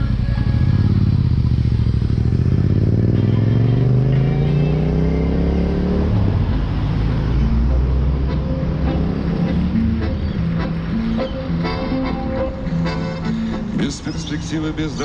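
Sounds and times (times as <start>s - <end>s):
motorcycle engine accelerating: 0.0s - 11.6s.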